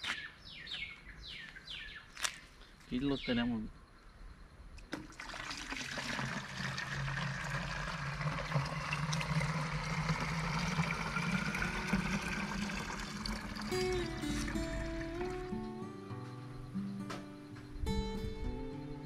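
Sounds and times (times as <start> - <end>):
water pouring into a jug: 4.9 - 15.5.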